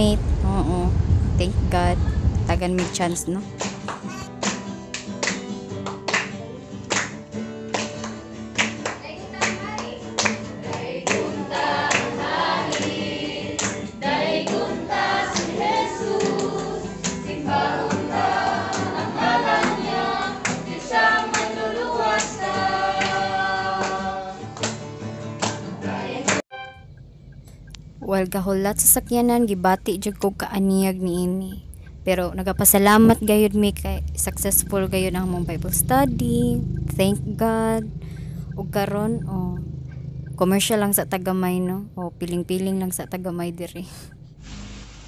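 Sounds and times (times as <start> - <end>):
guitar strumming: 2.5 - 30.3
group singing a worship song: 9.3 - 24.6, 25.5 - 26.4.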